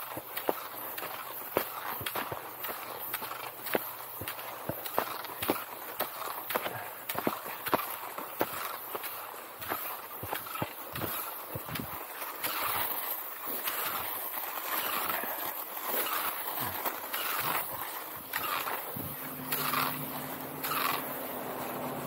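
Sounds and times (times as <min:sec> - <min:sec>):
skis swishing on snow: 0:00.0 - 0:22.0
low engine hum: 0:19.0 - 0:22.0.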